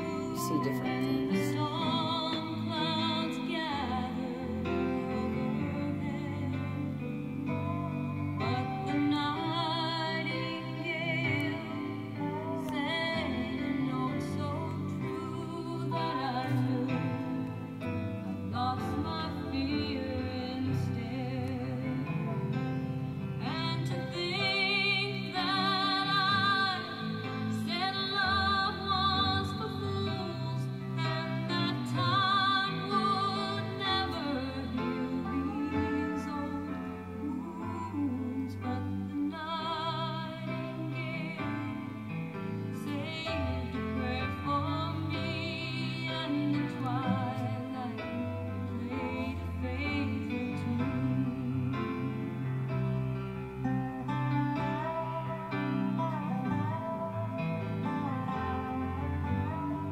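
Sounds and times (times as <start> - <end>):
instrumental accompaniment: 0.0 - 59.9
woman singing slow song: 0.0 - 59.9.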